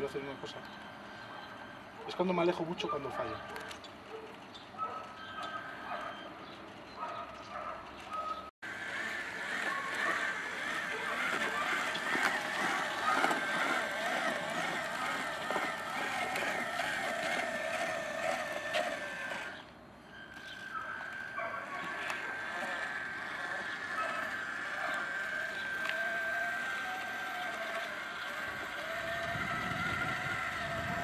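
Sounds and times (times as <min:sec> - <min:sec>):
model truck electric motor whining: 0:08.2 - 0:31.0.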